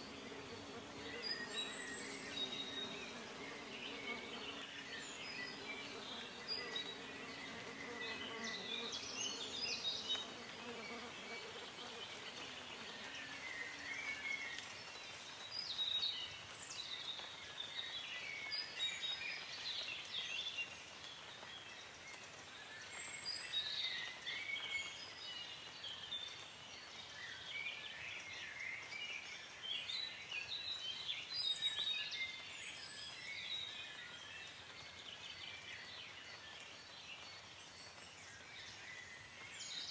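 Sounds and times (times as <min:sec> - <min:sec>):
birds chirping: 0:00.0 - 0:13.9
faint hiss: 0:00.0 - 0:39.9.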